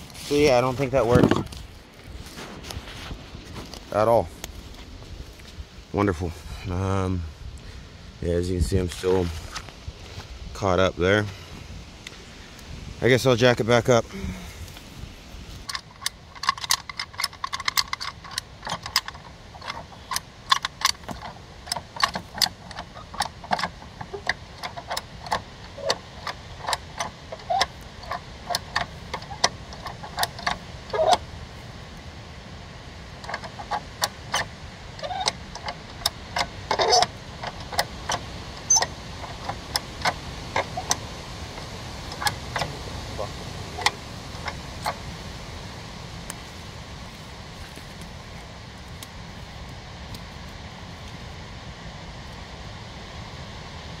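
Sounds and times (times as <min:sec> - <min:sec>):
jack metal clicks and clanks: 0:15.6 - 0:31.3, 0:33.1 - 0:45.1.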